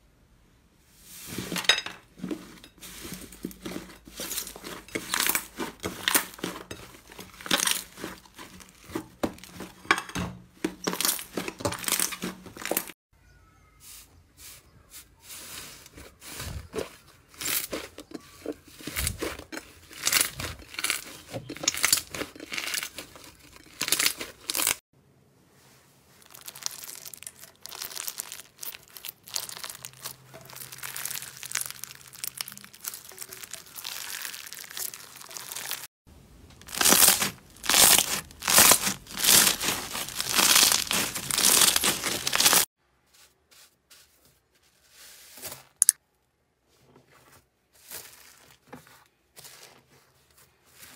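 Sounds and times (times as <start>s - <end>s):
slime crackling and squelching: 2.2s - 9.9s, 10.5s - 13.0s, 15.4s - 24.8s, 26.1s - 35.9s, 36.6s - 42.7s.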